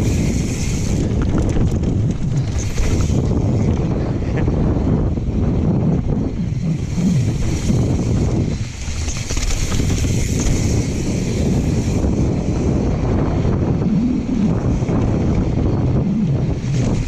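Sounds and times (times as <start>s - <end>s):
tyres rolling over dirt and gravel: 0.0s - 4.2s, 7.2s - 12.4s
wind buffeting microphone: 0.0s - 17.0s.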